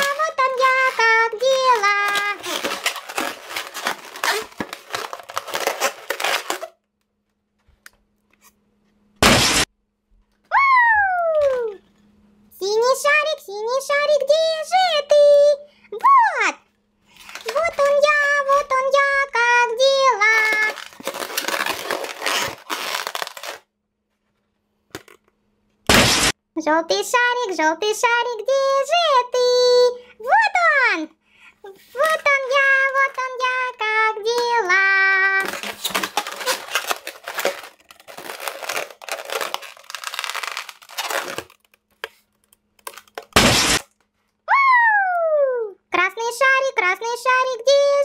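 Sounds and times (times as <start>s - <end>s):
balloon popping: 0.0s - 6.7s, 9.2s - 9.7s, 25.9s - 26.4s, 42.9s - 43.9s
latex balloon rubbing and crinkling: 0.0s - 6.7s, 20.2s - 23.6s, 35.4s - 41.6s
child singing: 26.6s - 30.0s, 32.0s - 35.6s.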